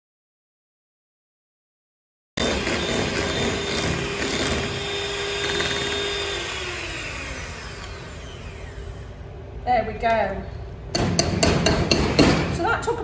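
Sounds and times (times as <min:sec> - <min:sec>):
electric hand mixer whisking cream: 0:02.4 - 0:09.1.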